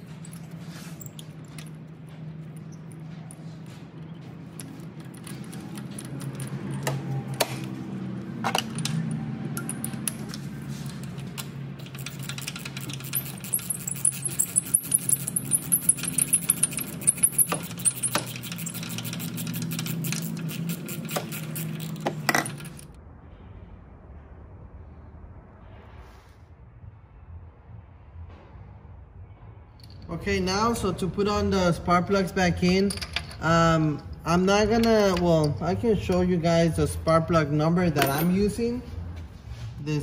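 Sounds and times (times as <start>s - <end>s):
ratchet clicking: 8.5s - 22.9s
low hum: 21.7s - 30.1s.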